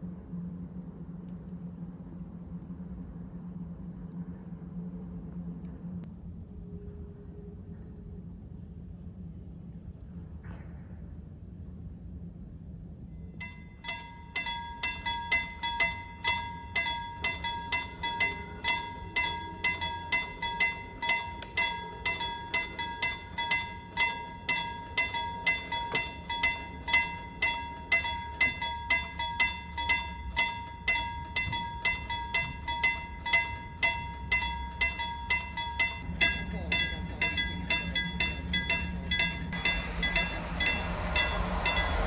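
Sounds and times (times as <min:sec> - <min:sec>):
level crossing warning bell: 0:13.4 - 0:42.0.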